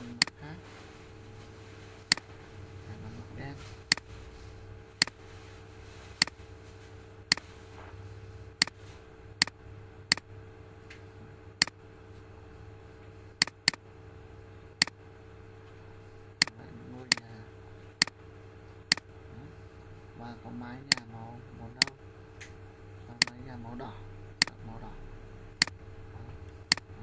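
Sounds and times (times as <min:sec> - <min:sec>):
low electrical hum: 0:00.0 - 0:27.0
computer mouse clicking: 0:09.4 - 0:10.3, 0:13.4 - 0:13.8, 0:16.4 - 0:17.3, 0:20.9 - 0:21.1, 0:26.7 - 0:26.9.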